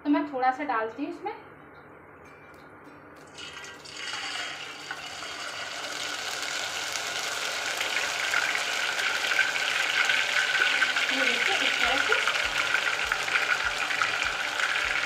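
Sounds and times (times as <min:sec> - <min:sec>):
batter sizzling in hot ghee: 0:03.3 - 0:15.0.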